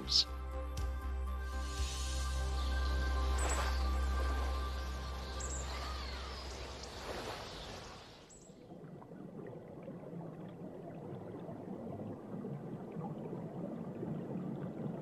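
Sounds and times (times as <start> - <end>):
background music: 0.0 - 6.8
water flowing over rocks: 2.7 - 15.0.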